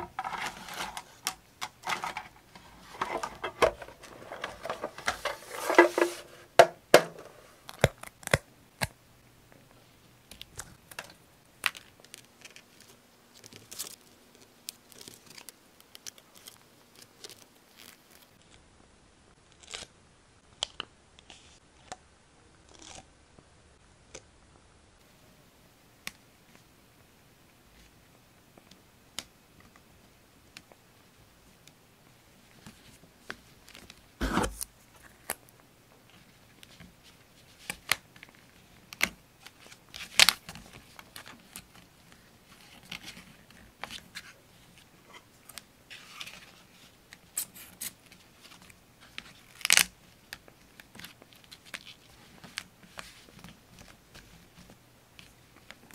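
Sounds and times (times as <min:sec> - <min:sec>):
paper rustling: 0:00.0 - 0:07.9, 0:36.1 - 0:55.9.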